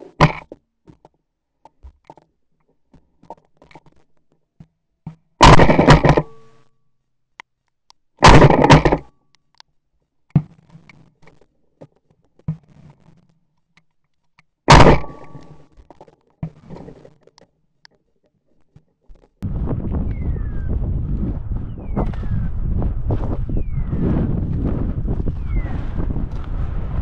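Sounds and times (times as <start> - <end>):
gun clicks and knocks: 0.2 - 6.5, 7.4 - 9.7, 13.6 - 16.5
shotgun shots: 5.4 - 6.2, 8.2 - 9.0, 14.7 - 15.5.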